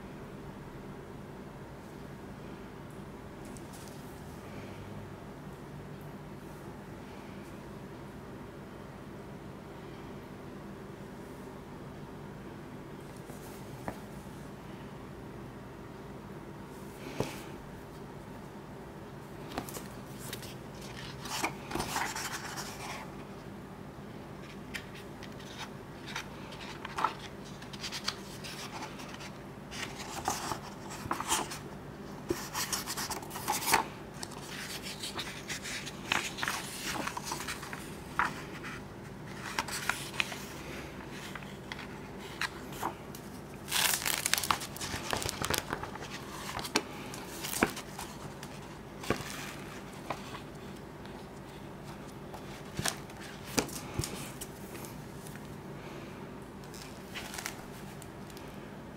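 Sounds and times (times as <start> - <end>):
book pages turning: 19.5 - 23.3, 24.4 - 55.5, 56.6 - 58.5.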